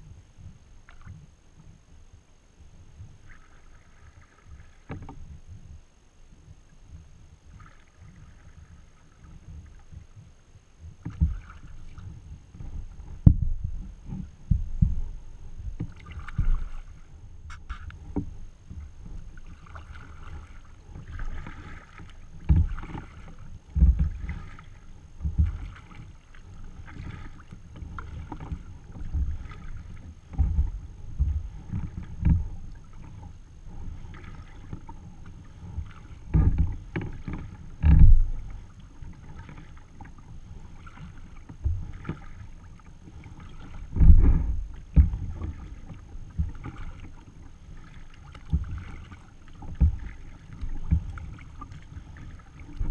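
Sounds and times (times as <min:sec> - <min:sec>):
paddle strokes splashing: 0:00.0 - 0:01.8, 0:02.7 - 0:52.9
low thumps: 0:13.2 - 0:13.8.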